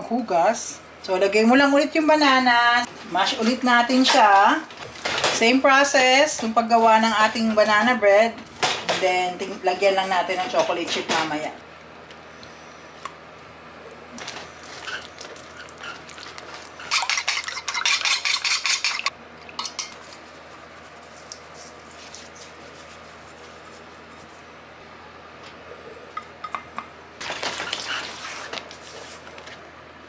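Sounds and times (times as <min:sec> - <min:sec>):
spoon stirring batter in metal bowl: 0:14.6 - 0:24.2.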